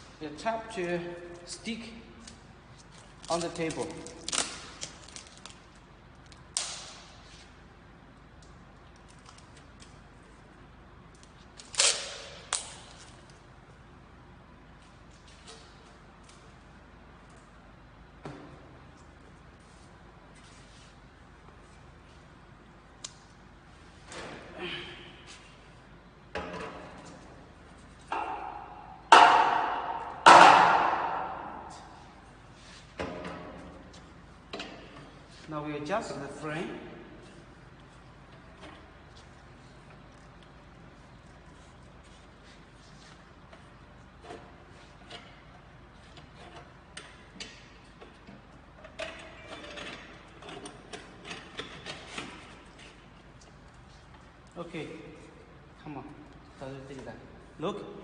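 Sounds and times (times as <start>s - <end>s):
clicks and knocks of metal frame: 44.2s - 53.1s.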